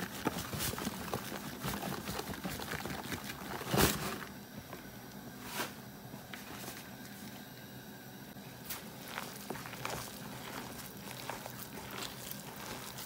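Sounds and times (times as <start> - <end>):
flour rustling: 0.0 - 4.3, 8.4 - 13.0
flour pouring rush: 8.6 - 13.0.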